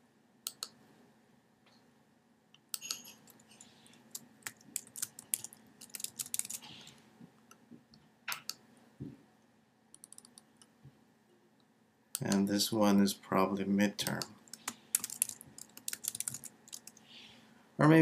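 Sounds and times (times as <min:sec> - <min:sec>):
computer keyboard key clicks: 0:04.1 - 0:06.6, 0:14.0 - 0:17.0.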